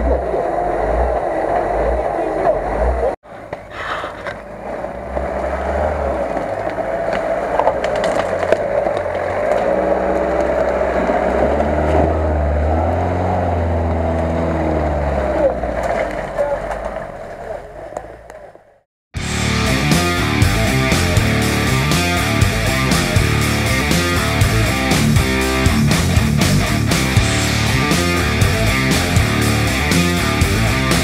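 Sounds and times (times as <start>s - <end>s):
off-road vehicle engine: 0.0s - 31.0s
rock music: 19.2s - 31.0s.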